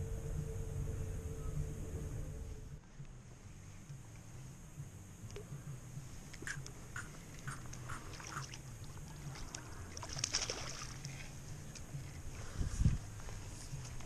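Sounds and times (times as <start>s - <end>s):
low steady hum: 0.0s - 14.0s
fish splashing at water surface: 7.3s - 11.2s.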